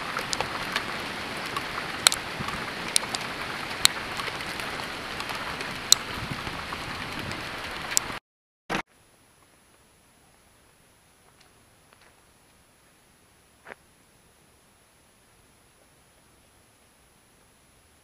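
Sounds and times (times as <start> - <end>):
hailstones clicking: 0.0 - 8.2
heavy rain hissing: 0.0 - 8.2.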